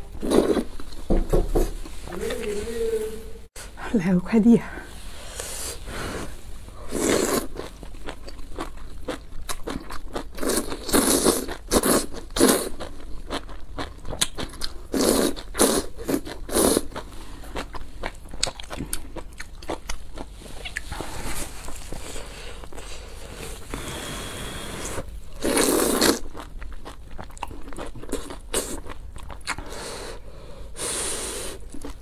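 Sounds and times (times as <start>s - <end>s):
person slurping noodles: 5.2s - 7.6s, 20.6s - 26.2s, 30.8s - 31.9s
chewing: 7.1s - 22.9s, 25.3s - 29.7s, 31.6s - 32.0s.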